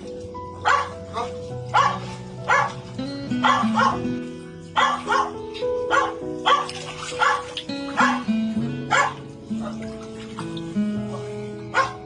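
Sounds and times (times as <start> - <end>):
background music with held notes: 0.0 - 12.0
dog barking: 0.6 - 2.8, 3.4 - 4.1, 4.8 - 8.3, 8.9 - 9.8, 11.1 - 12.0.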